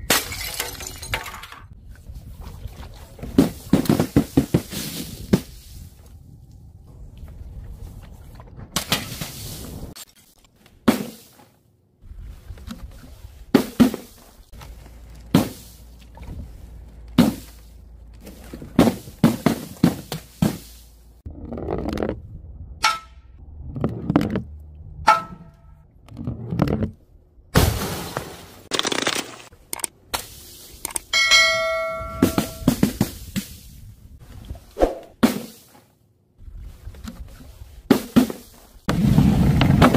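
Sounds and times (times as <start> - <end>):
ringing tone: 31.1 - 32.7.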